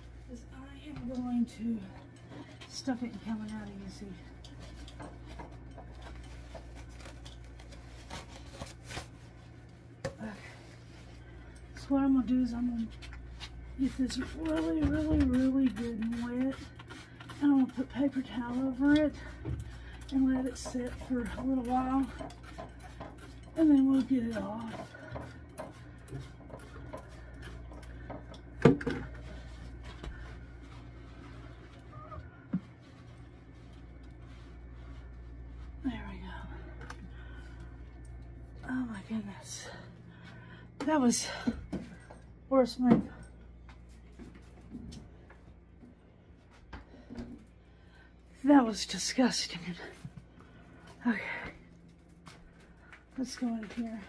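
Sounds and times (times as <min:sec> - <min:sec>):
steady low hum: 0:00.0 - 0:54.0
paper towel rustling: 0:06.0 - 0:09.7.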